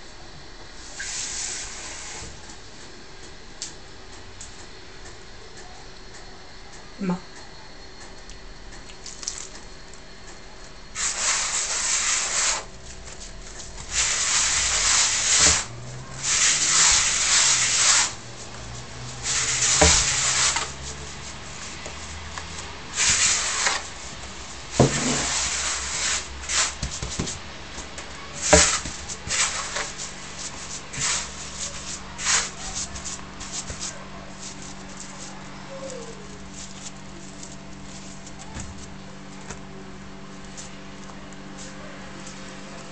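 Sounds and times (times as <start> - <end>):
hands rubbing semolina in wooden bowl: 11.0 - 24.3, 24.9 - 27.4, 28.4 - 38.9.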